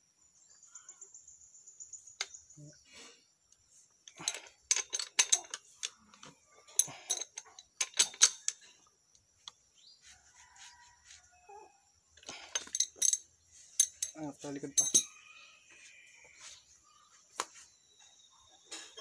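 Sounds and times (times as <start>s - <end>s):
wrench clinking on metal nut: 4.1s - 6.0s, 6.7s - 8.7s, 12.4s - 15.2s.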